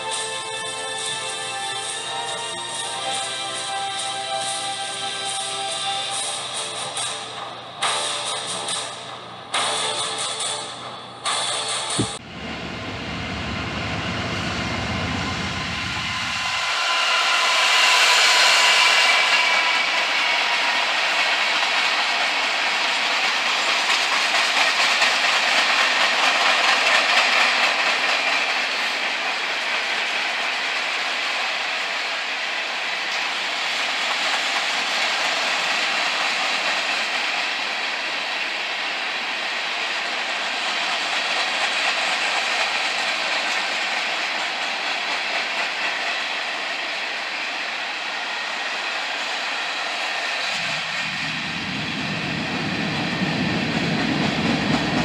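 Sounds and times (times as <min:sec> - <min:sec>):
train wheels clattering over rail joints: 0:19.2 - 0:32.0.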